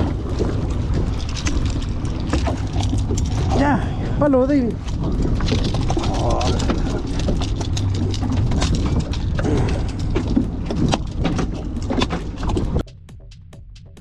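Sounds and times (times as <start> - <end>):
boat engine rumble: 0.0 - 14.0
knocks and clatter: 0.0 - 14.0.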